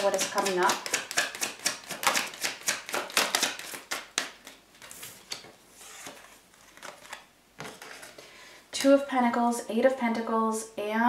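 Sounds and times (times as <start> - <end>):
cards being shuffled: 0.0 - 8.2.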